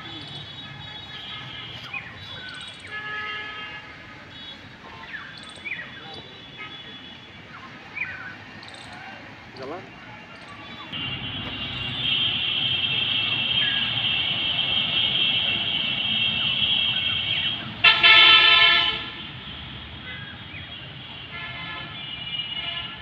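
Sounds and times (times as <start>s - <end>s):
full vehicle horn honk: 2.8s - 4.6s, 11.0s - 19.3s, 21.0s - 23.0s
high-pitched vehicle horn: 11.0s - 19.2s.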